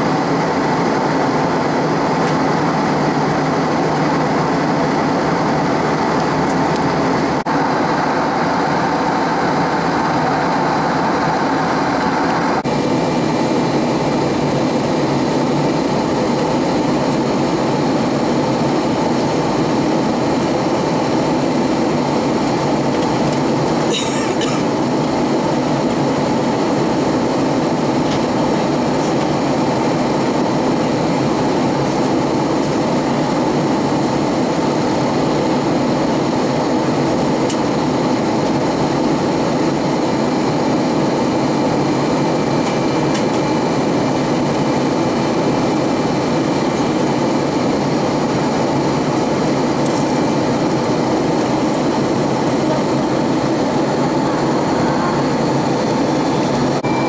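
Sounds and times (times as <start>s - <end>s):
air rushing over aircraft fuselage: 0.0s - 23.9s
jet engines humming: 0.0s - 57.0s.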